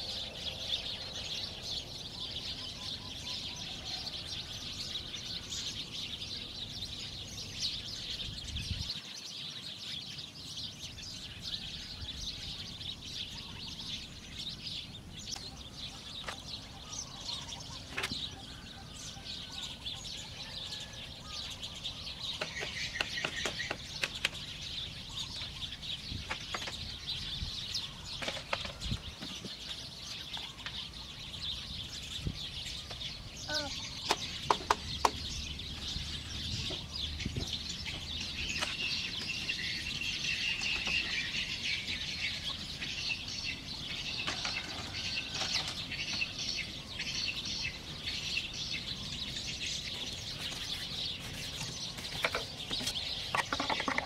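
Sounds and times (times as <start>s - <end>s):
forest birds chirping: 0.0s - 54.0s
bamboo being chopped and tapped: 22.4s - 24.4s.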